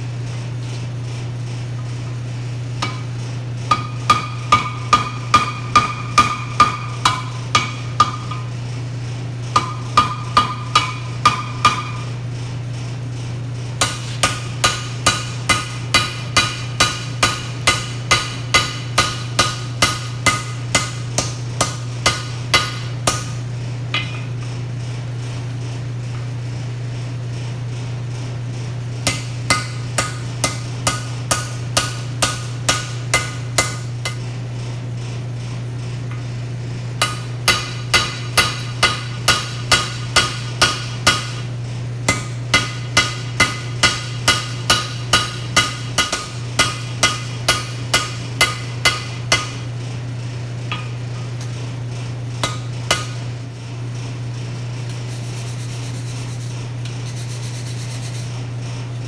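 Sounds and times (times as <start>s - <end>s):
forge blower humming: 0.0s - 59.0s
hammer striking steel on anvil: 2.8s - 3.1s, 3.7s - 8.5s, 9.6s - 12.1s, 13.8s - 24.4s, 29.0s - 34.2s, 37.0s - 41.5s, 42.1s - 49.6s, 50.7s - 51.5s, 52.4s - 53.2s.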